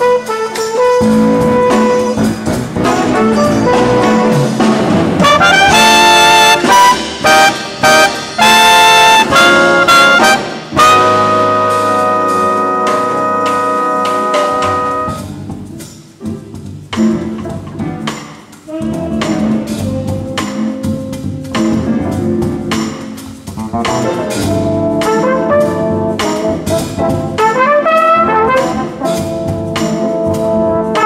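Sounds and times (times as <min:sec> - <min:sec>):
punched brass chords: 0:00.0 - 0:15.7, 0:23.7 - 0:31.0
jazz big band playing: 0:00.0 - 0:31.0.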